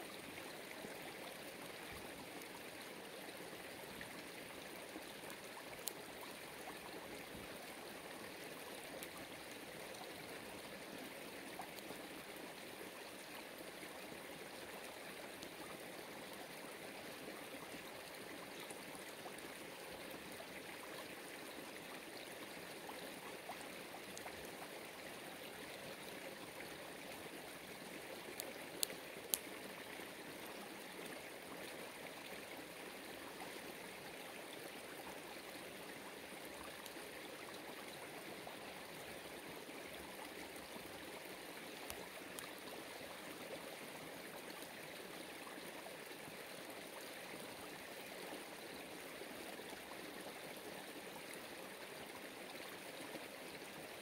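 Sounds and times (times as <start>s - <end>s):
faint clicks: 5.2s - 6.4s, 28.3s - 29.6s, 41.8s - 42.8s.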